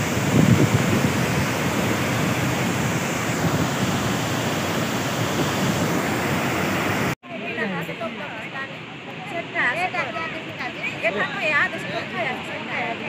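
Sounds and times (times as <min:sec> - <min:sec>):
water rushing over rocks: 0:00.0 - 0:07.2.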